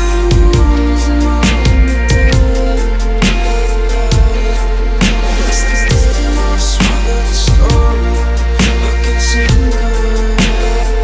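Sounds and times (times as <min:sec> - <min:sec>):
electronic music with deep bass: 0:00.0 - 0:11.0
drum hits: 0:01.4 - 0:02.6.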